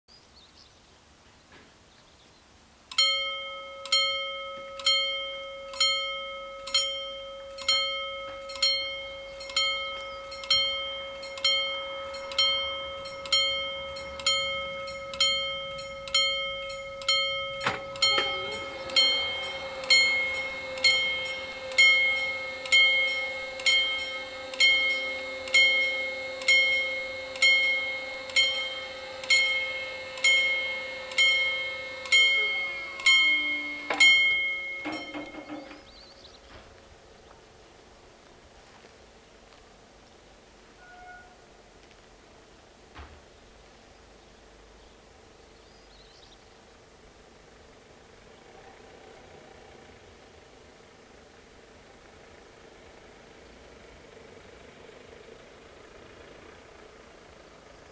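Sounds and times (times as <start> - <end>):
level crossing warning bells: 2.9 - 36.9
barrier arm motor hum: 7.4 - 36.8.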